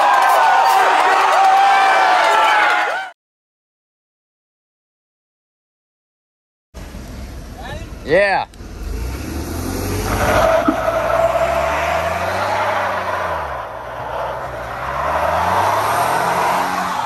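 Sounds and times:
truck engine revving: 6.8 - 17.0
tire squealing on asphalt: 6.9 - 17.0.

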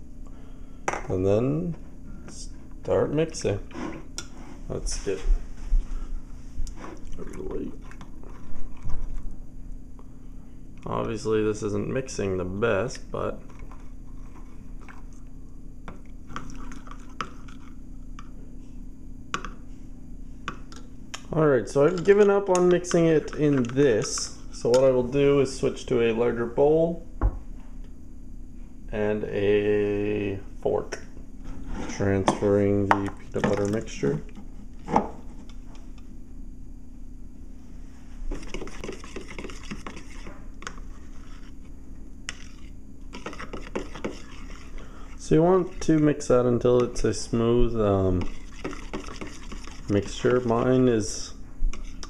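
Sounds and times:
wet squishing stirring: 6.4 - 9.4, 13.0 - 18.2, 19.5 - 25.6, 33.0 - 36.1, 37.6 - 52.0.

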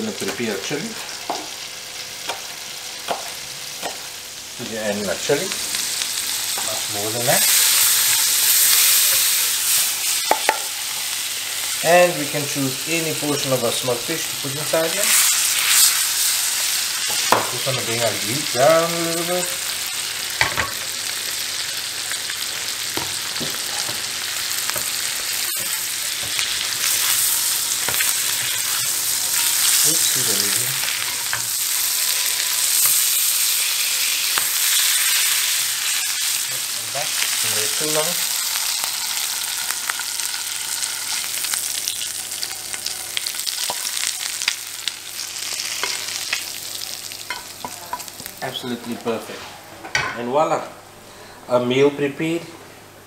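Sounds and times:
fish sizzling in a frying pan: 0.0 - 49.2.

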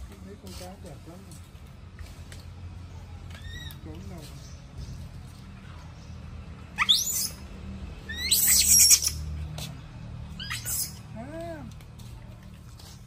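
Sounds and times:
monkey squealing: 3.4 - 3.8, 6.8 - 7.4, 8.1 - 9.3, 10.4 - 11.1.

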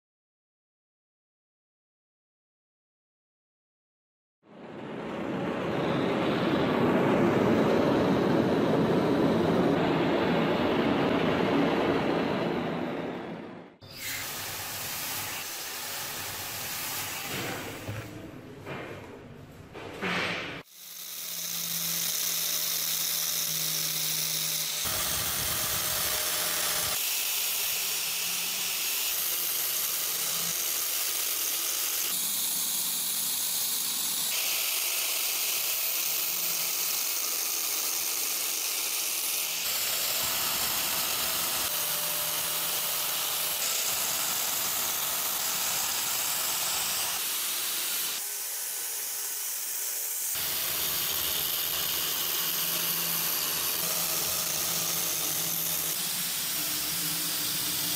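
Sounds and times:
angle grinder grinding steel: 13.8 - 18.1, 20.6 - 57.9
motor whine: 20.7 - 38.6.

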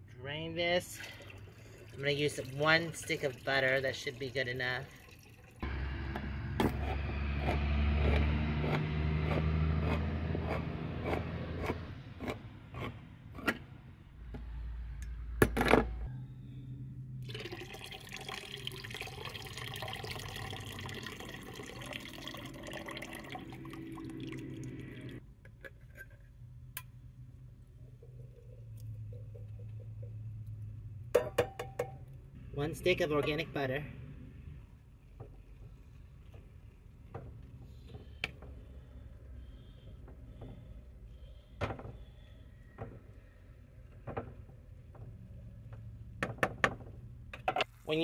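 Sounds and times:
liquid pouring into bowl: 1.0 - 5.6, 17.2 - 25.2.

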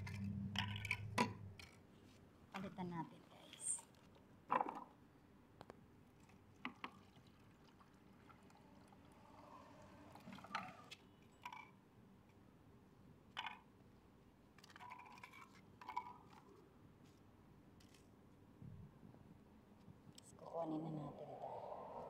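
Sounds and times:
water pouring into plastic bowl: 6.2 - 10.9.

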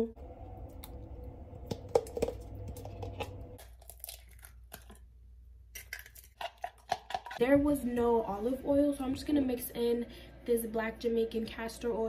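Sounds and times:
steady background hum: 0.0 - 12.0
eggshell crackling: 0.4 - 7.4.

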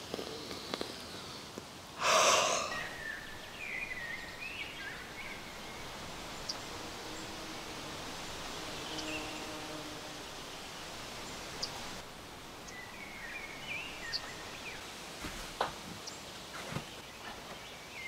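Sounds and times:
forest ambience: 0.0 - 18.0
person sniffing: 2.0 - 3.0
bird chirps: 2.2 - 14.8.

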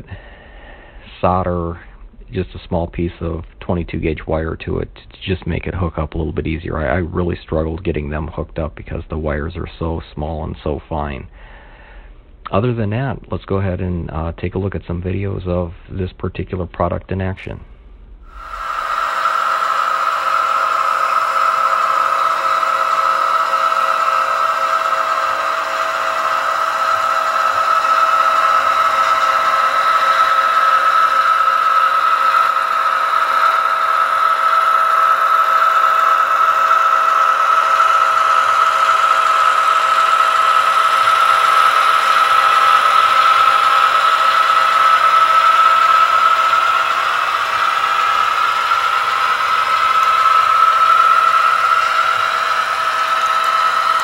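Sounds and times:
model locomotive whine: 17.8 - 54.0
model cars rolling on rails: 23.5 - 54.0.

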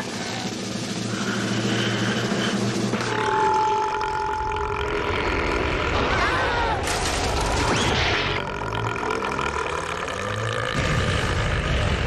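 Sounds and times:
cartoon burp: 3.0 - 6.1, 8.2 - 12.0.

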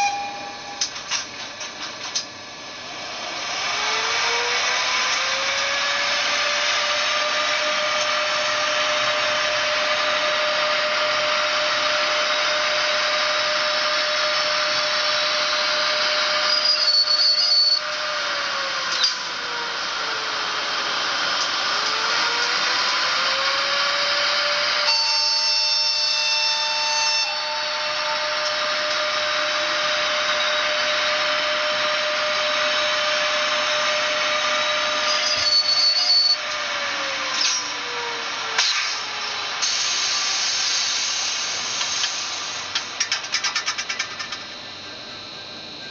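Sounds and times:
short high signal tones: 0.0 - 1.0, 16.5 - 17.8, 35.2 - 36.4
locomotive motor whine: 0.0 - 25.8, 26.6 - 43.1.

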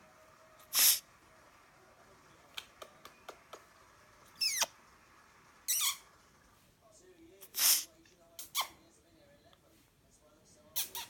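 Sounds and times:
parrot falling squeak: 4.4 - 4.8, 5.7 - 6.1
parrot raspy squawk: 5.7 - 6.1.

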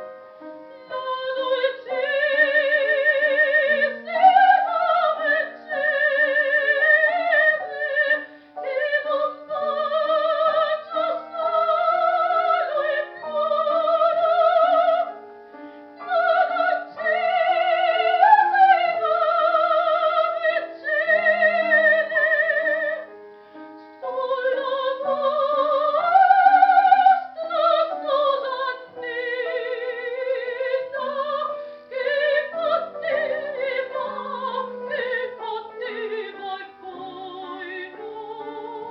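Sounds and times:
piano accompaniment: 0.0 - 38.9
soprano singing opera: 0.7 - 23.2, 23.8 - 38.9.

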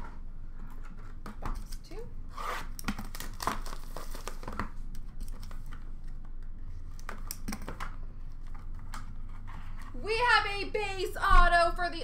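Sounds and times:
packaging crinkling and rustling: 2.6 - 10.0.

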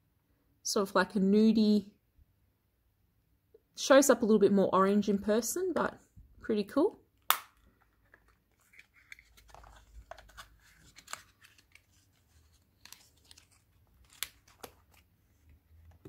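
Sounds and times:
packaging rustling: 7.9 - 15.1.

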